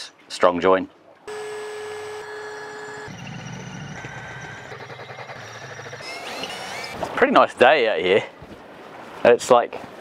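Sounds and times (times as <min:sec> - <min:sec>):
electric drill boring through steel: 0:01.3 - 0:07.0.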